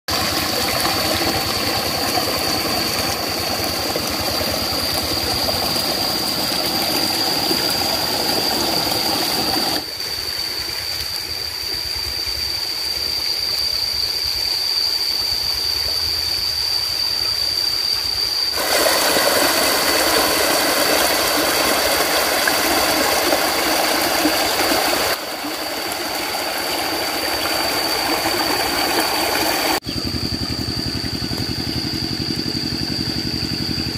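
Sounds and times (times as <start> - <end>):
water gushing from hose: 0.1 - 12.1, 18.5 - 29.8
high-pitched whine: 0.1 - 33.9
outdoor noise: 0.1 - 33.9.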